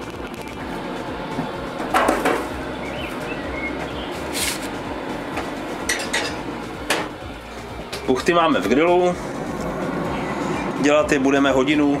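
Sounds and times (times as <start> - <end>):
grill running noise: 0.0 - 12.0
metal trays clattering: 5.9 - 7.1.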